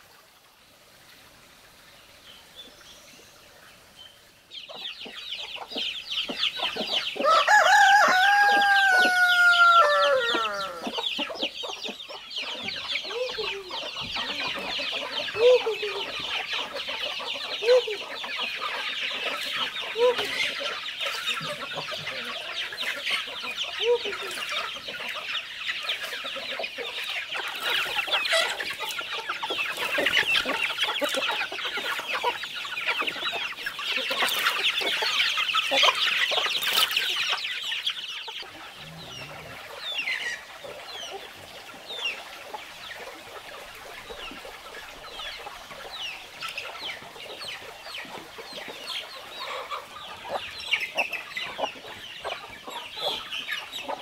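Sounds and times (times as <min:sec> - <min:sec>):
chicks peeping: 0:01.1 - 0:54.0
hens clucking: 0:04.5 - 0:54.0
rooster crowing: 0:07.2 - 0:10.9.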